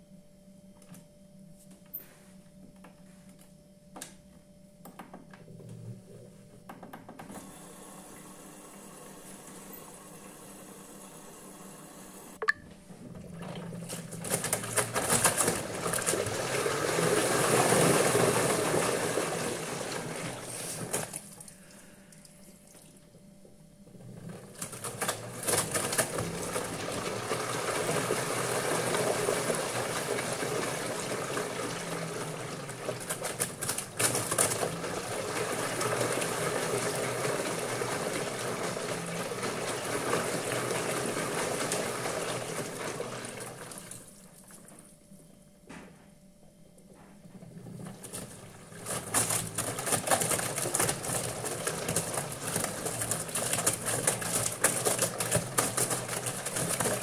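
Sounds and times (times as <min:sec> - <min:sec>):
washing machine drum tumbling: 0:12.9 - 0:21.3, 0:24.1 - 0:44.1, 0:47.1 - 0:57.0
water sloshing and splashing: 0:47.6 - 0:57.0.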